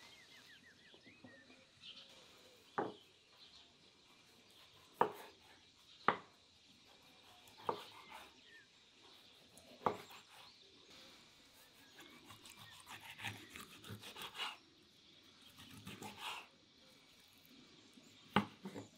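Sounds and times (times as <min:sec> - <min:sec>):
knife knocking on wooden board: 0:02.8 - 0:03.0
knife slicing raw meat: 0:07.1 - 0:08.3, 0:11.8 - 0:14.6, 0:15.5 - 0:16.5.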